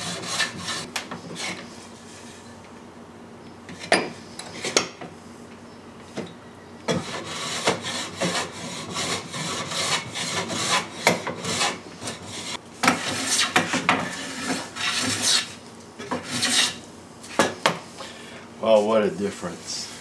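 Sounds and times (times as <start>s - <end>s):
hand plane rasping on wood: 0.0s - 1.6s, 6.9s - 15.5s.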